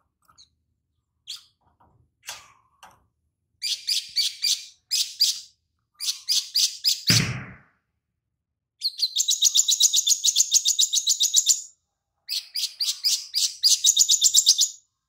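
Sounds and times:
low thump: 7.1 - 7.7
sunbird chirping song: 8.8 - 11.7, 12.3 - 14.8.

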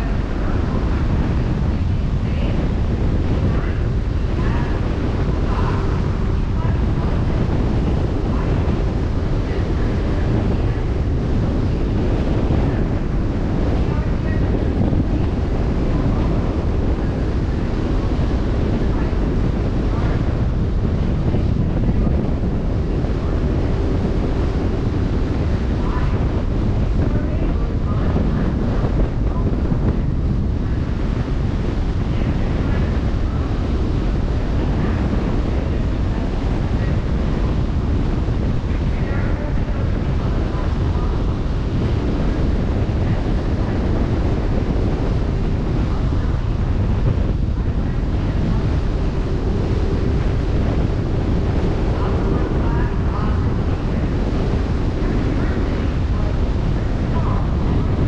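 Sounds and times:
wind buffeting microphone: 0.0 - 58.0.

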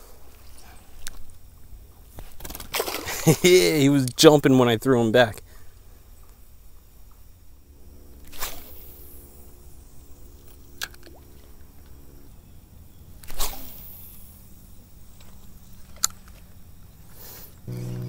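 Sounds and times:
low steady rumble: 3.2 - 18.0
fishing line swish: 8.2 - 9.5, 13.2 - 14.4.

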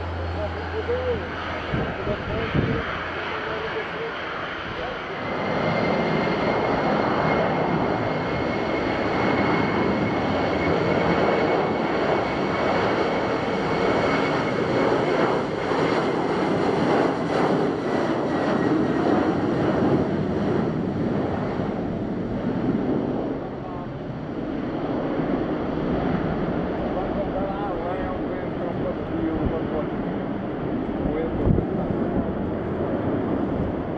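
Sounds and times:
high fan whine: 0.0 - 4.9
jet engines at takeoff thrust: 0.0 - 33.9.

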